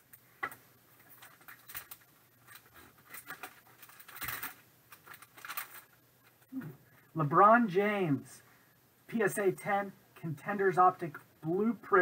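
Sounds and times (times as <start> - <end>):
plastic pouch crinkling: 1.2 - 6.0.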